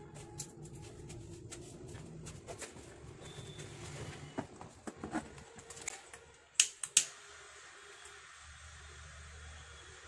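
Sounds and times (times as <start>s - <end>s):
desoldering pump snapping: 5.7s - 7.1s.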